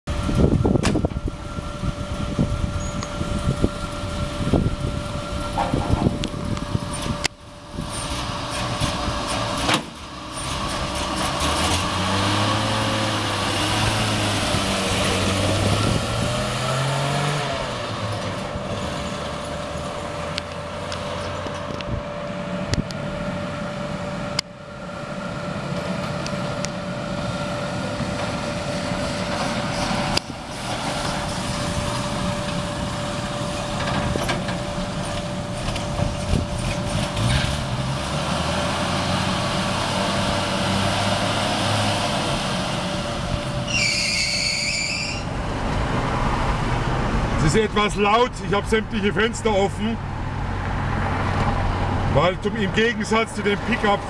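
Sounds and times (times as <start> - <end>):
street traffic noise: 0.0 - 54.0
truck engine accelerating: 0.1 - 54.0.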